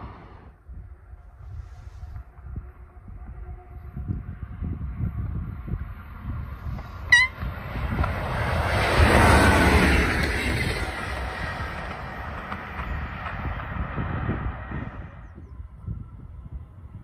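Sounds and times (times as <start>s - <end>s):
train rushing and rumbling past: 0.0s - 17.0s
train horn toot: 2.8s - 4.3s, 7.1s - 7.5s.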